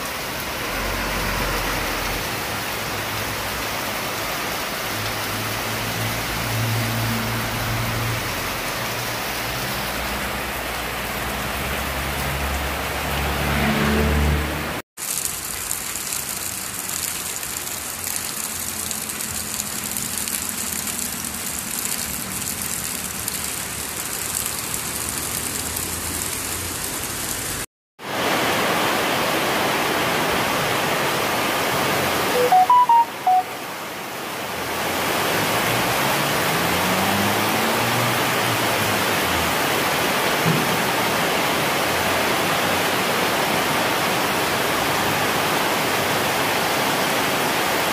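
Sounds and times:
heavy rain on a roof: 0.0s - 47.9s
short high chirps: 32.4s - 33.5s.

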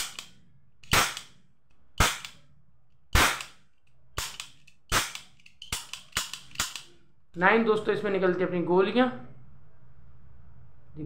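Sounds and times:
toy cap gun bangs: 0.0s - 1.3s, 2.0s - 2.4s, 3.1s - 3.6s, 4.2s - 6.8s.

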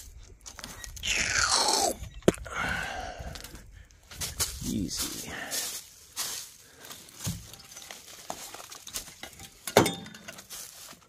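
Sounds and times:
rustling through dry brush: 3.2s - 11.0s.

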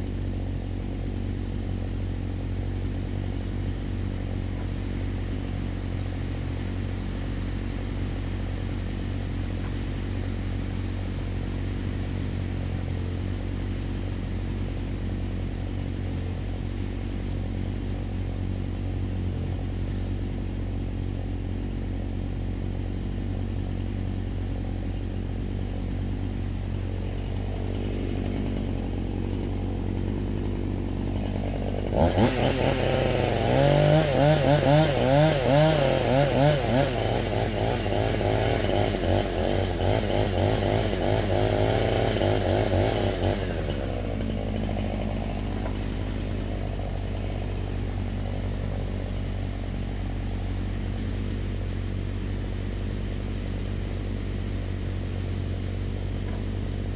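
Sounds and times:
excavator engine hum: 0.0s - 56.9s
chainsaw revving and cutting: 26.8s - 51.2s.

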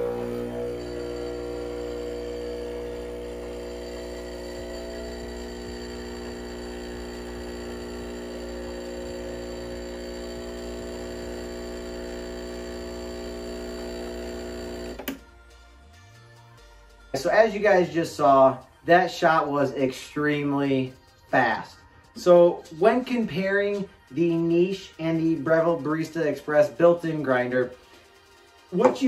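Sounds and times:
espresso machine pump buzzing: 0.0s - 15.2s, 28.8s - 29.0s.

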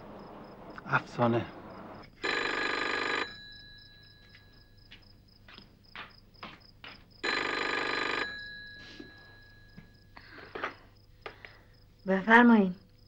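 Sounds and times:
telephone bell ringing: 2.2s - 4.8s, 7.2s - 10.2s.

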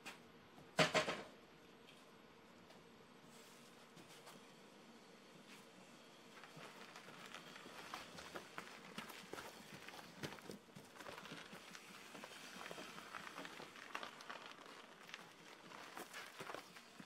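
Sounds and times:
tyres rolling over gravel: 6.2s - 17.0s
footsteps on gravel: 6.4s - 17.0s
small clicks and crackles: 6.4s - 17.0s.

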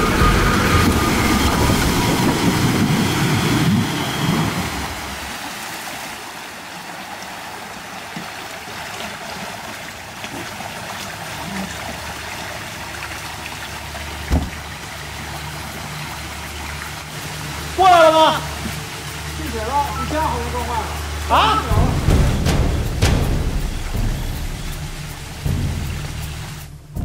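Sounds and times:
off-road vehicle engine running: 0.0s - 5.3s, 13.8s - 27.0s
water trickling and splashing: 0.0s - 27.0s
sharp knock: 21.7s - 27.0s.

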